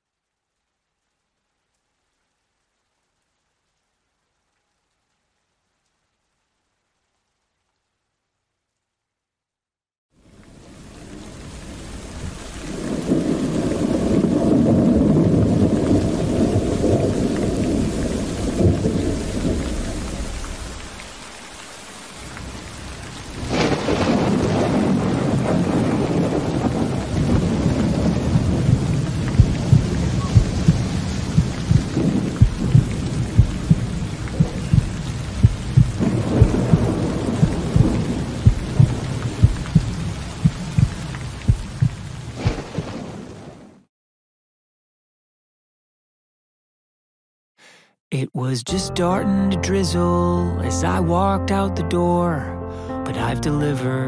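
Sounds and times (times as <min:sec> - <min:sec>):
steady rain: 0:00.0 - 0:09.0, 0:10.2 - 0:43.9
rolling thunder: 0:11.9 - 0:21.2, 0:22.4 - 0:43.7
sharp thunderclap: 0:12.7 - 0:21.0, 0:23.3 - 0:43.6
low repeating thud: 0:28.6 - 0:42.0.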